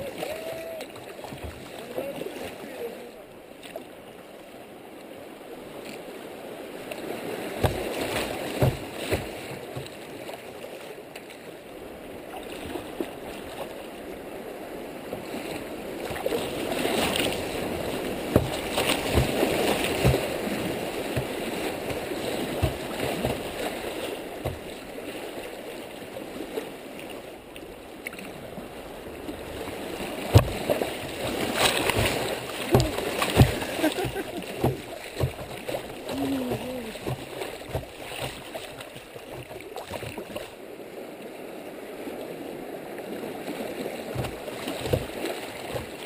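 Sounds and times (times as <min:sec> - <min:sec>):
water knocking against kayak hull: 0:00.0 - 0:02.1, 0:07.5 - 0:10.2, 0:16.0 - 0:24.8, 0:30.1 - 0:40.5, 0:44.0 - 0:46.0
creek water rushing: 0:00.0 - 0:46.0.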